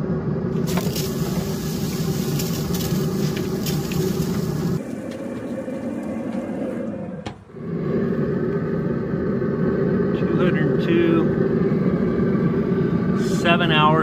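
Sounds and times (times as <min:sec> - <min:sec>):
pellet grill humming: 0:00.0 - 0:14.0
spray bottle hissing squirts: 0:00.6 - 0:04.8.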